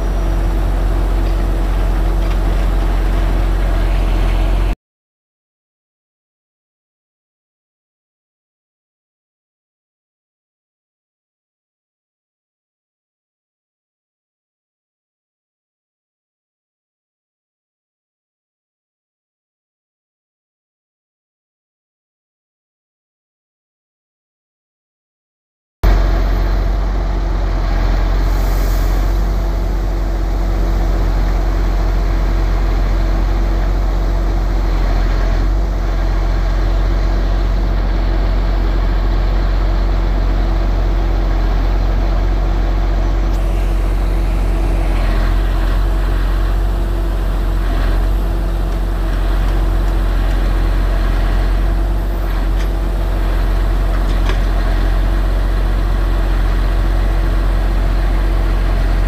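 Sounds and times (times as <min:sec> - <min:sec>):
diesel engine running: 0:00.0 - 0:04.8, 0:25.8 - 0:59.0.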